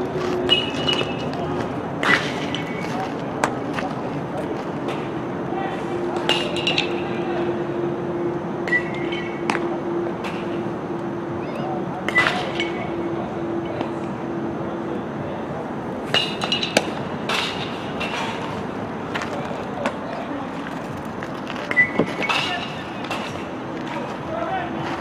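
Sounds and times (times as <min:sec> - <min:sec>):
faint distant voices: 0:00.0 - 0:25.0
steady low hum: 0:00.0 - 0:25.0.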